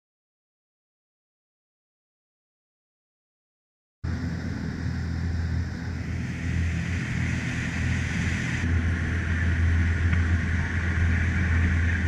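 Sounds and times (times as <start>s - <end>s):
boat engine humming: 4.1s - 12.0s
water rushing along hull: 4.1s - 12.0s.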